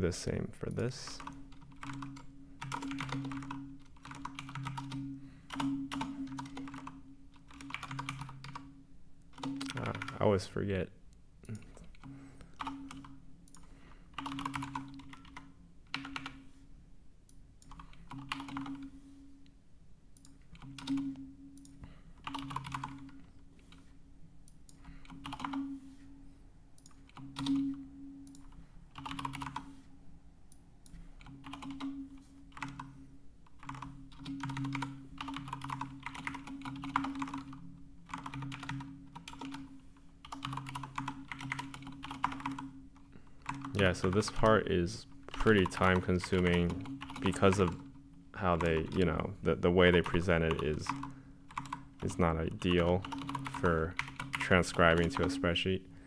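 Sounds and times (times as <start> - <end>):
typing on a computer keyboard: 1.1 - 8.7, 9.3 - 10.2, 11.6 - 16.4, 17.6 - 19.0, 20.2 - 23.9, 24.5 - 25.7, 26.8 - 29.7, 30.8 - 32.9, 33.5 - 42.8, 43.4 - 44.5, 45.3 - 48.0, 49.9 - 55.4.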